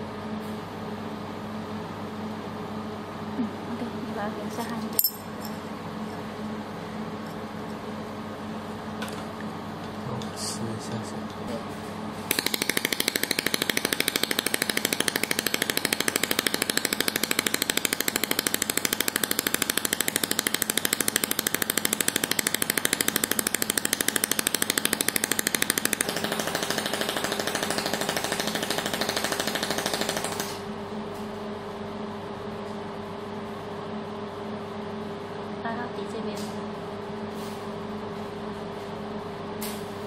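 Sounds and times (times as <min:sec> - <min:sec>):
steady machine hum: 0:00.0 - 0:40.0
laser welder pulses snapping: 0:12.3 - 0:30.6.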